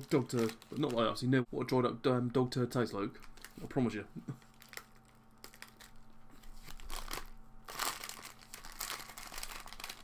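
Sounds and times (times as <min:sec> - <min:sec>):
plastic wrapper crinkling: 0:00.0 - 0:01.2, 0:03.2 - 0:03.7, 0:04.3 - 0:10.0.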